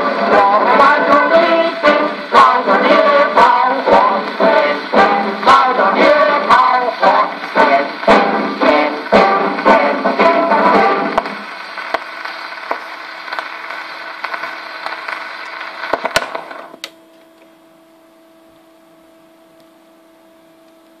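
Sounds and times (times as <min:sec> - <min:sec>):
gramophone music: 0:00.0 - 0:16.8
faint steady hum: 0:00.0 - 0:21.0
record surface hiss and crackle: 0:00.0 - 0:21.0.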